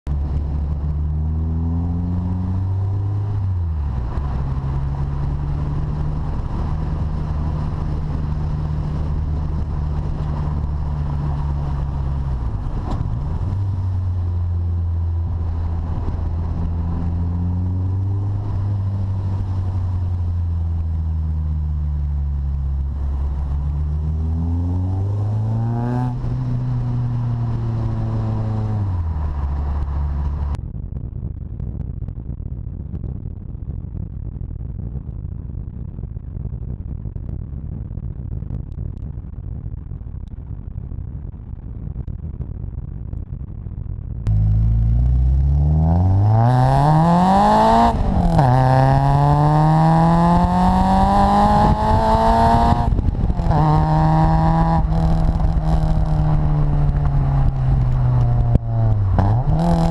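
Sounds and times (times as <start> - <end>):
road noise: 0.0 - 33.0, 37.2 - 59.9
car engine pulling: 44.3 - 59.9.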